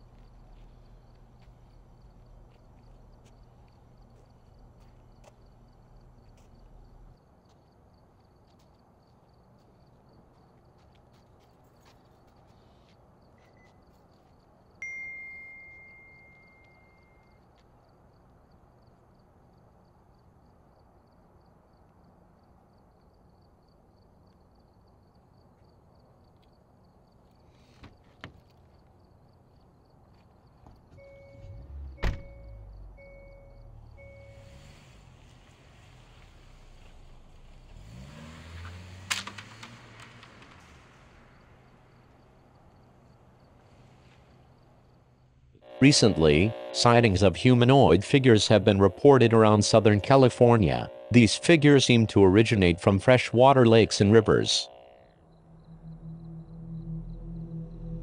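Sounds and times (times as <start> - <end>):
car engine pulling away: 31.0 - 45.2, 54.6 - 58.0.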